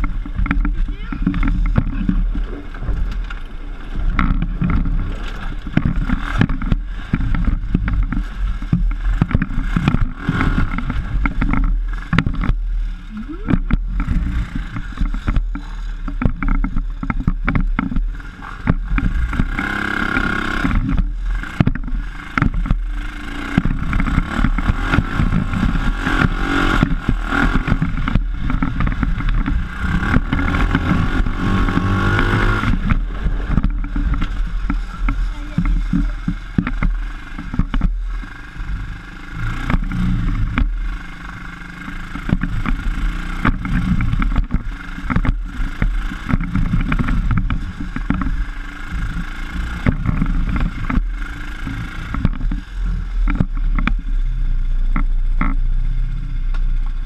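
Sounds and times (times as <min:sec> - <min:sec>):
chassis knocks and rattles: 0:00.0 - 0:38.4
buggy engine revving: 0:00.0 - 0:57.0.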